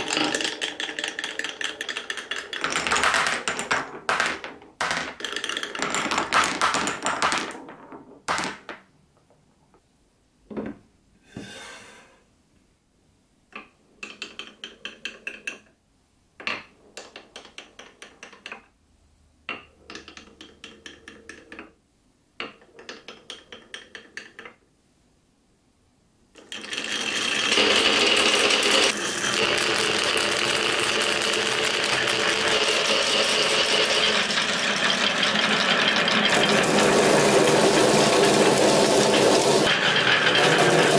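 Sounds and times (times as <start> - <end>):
dense rattle of rolling marbles: 0.0 - 8.8, 26.4 - 40.9
marbles clacking in wooden run: 0.0 - 8.9, 13.6 - 15.7, 16.6 - 18.7, 19.5 - 21.7, 22.4 - 24.6, 26.4 - 40.9.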